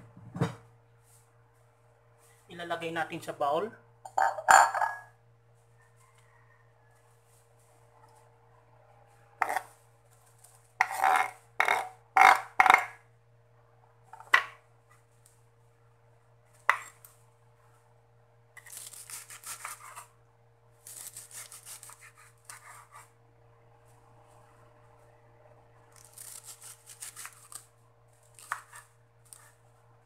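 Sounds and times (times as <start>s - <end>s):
knife scraping on cutting board: 9.4s - 9.7s, 10.8s - 12.4s, 18.6s - 20.1s, 20.9s - 23.2s, 28.4s - 29.6s
knife slicing cabbage on board: 18.6s - 20.1s, 20.8s - 23.1s, 26.0s - 27.6s, 28.3s - 29.6s.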